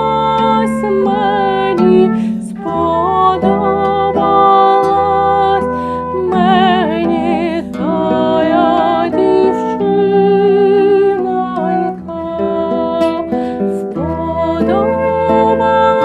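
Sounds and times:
flute playing held notes: 0.0s - 12.1s
plucked lute: 0.0s - 16.0s
woman singing with vibrato: 0.0s - 16.0s.

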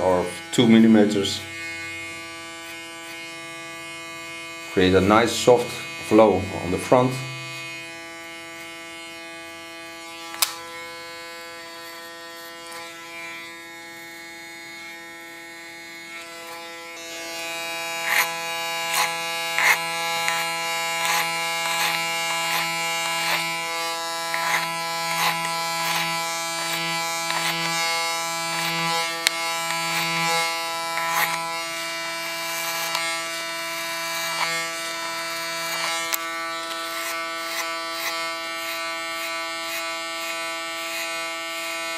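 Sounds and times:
electric hair clipper buzzing: 0.0s - 41.9s
clipper blades crackling through hair: 10.1s - 10.7s, 17.4s - 31.6s, 32.6s - 33.2s, 34.1s - 34.8s, 35.5s - 41.1s.

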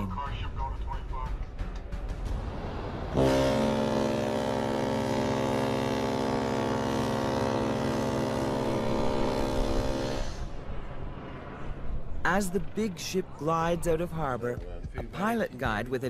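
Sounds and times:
deep ship's horn blast: 3.1s - 10.7s.

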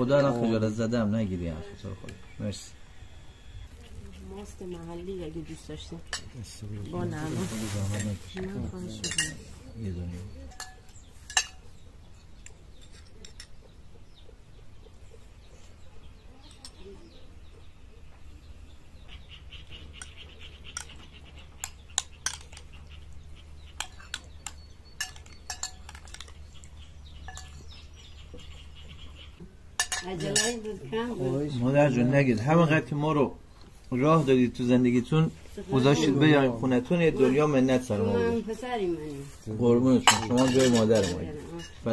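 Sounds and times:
cutlery clinking against dishes: 9.0s - 9.5s, 10.5s - 11.7s, 12.7s - 13.6s, 21.6s - 22.7s, 23.8s - 26.4s, 27.2s - 27.7s, 29.8s - 30.7s, 40.0s - 41.9s.

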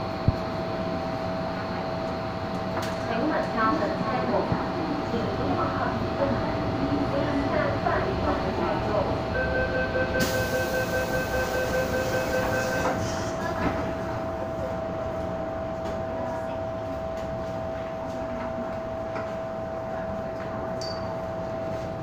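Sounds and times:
train hum: 0.0s - 22.0s
electronic door warning tone: 9.3s - 13.1s.

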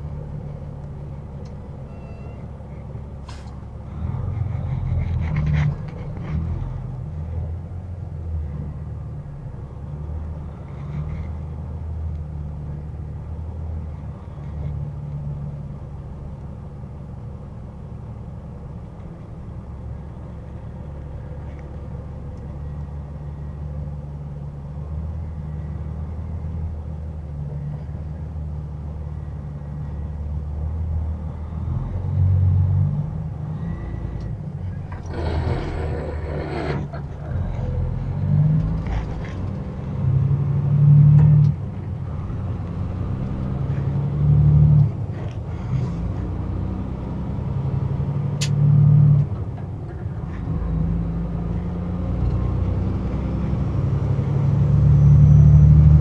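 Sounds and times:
truck engine and road noise: 0.0s - 56.0s
brief hiss: 3.2s - 3.6s.

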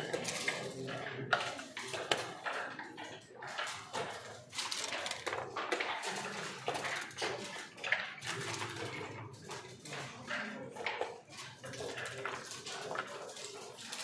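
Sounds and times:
game pieces clicking on board: 3.5s - 9.2s.

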